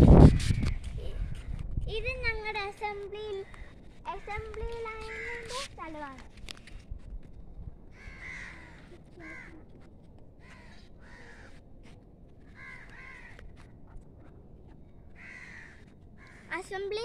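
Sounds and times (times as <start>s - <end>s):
crows cawing: 3.4s - 5.6s, 7.9s - 9.8s, 10.4s - 11.6s, 12.4s - 13.7s, 15.1s - 16.6s.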